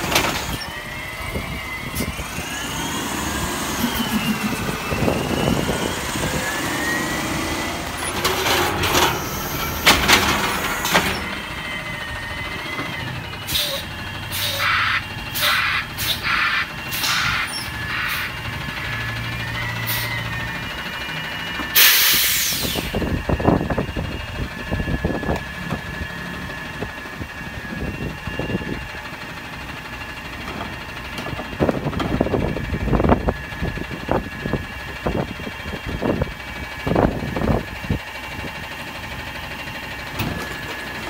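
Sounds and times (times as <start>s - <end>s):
garbage truck engine running: 0.0s - 41.0s
air brake hiss: 21.8s - 23.0s.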